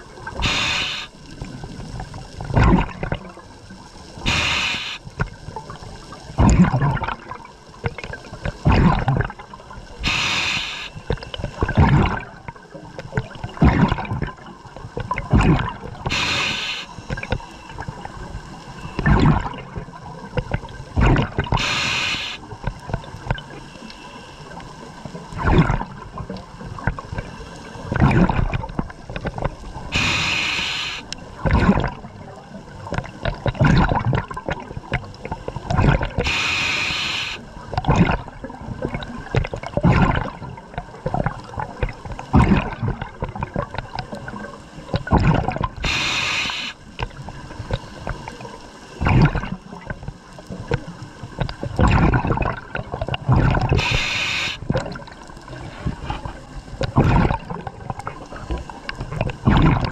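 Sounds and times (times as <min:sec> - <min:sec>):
exhaled air bubbling: 0:00.0 - 0:59.9
regulator inhalation hiss: 0:00.4 - 0:01.2, 0:04.2 - 0:05.0, 0:10.0 - 0:11.0, 0:16.1 - 0:17.7, 0:21.6 - 0:22.4, 0:29.9 - 0:31.2, 0:36.2 - 0:37.4, 0:45.8 - 0:46.8, 0:53.8 - 0:54.6.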